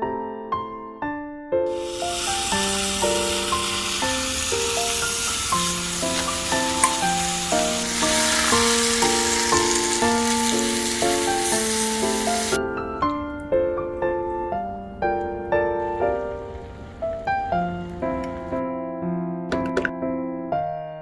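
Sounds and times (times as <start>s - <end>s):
sauce sizzling in hot pan: 1.7s - 12.6s
keyboard music: 1.7s - 18.6s.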